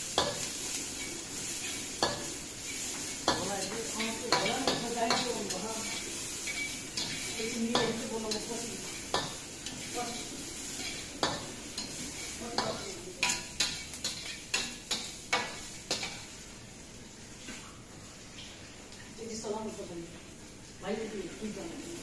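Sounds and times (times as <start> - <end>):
vegetables sizzling: 0.0 - 22.0
metal spatula clanking on wok: 3.3 - 8.5, 9.1 - 16.2.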